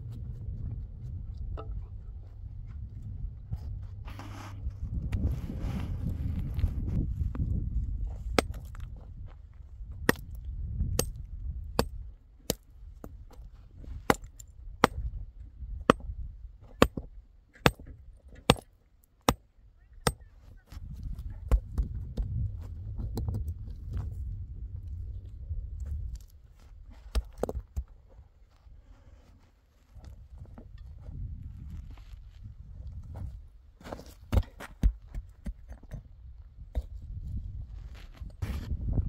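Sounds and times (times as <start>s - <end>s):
low rumbling noise: 0.0s - 11.8s, 21.3s - 26.5s
rocks clacking on stony ground: 6.0s - 15.2s, 15.8s - 24.3s, 25.0s - 28.6s, 29.8s - 39.0s.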